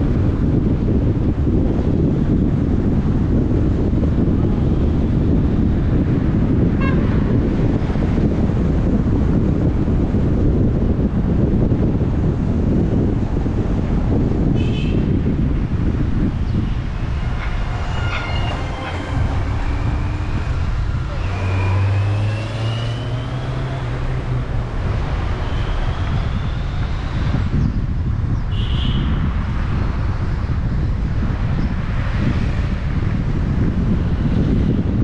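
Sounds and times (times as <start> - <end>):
traffic rumble: 0.0 - 35.0
vehicle passing: 15.8 - 27.4.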